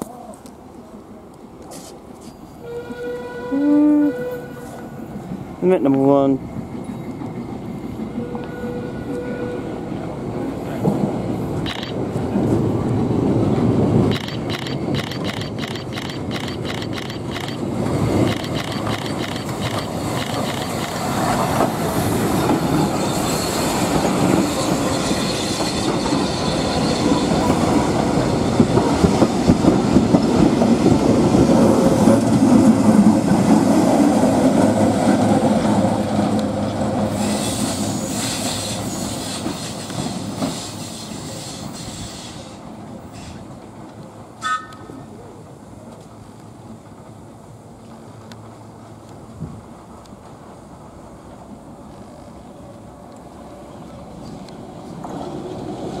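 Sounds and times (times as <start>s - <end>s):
train wheels clicking over rail joints: 10.7s - 44.9s.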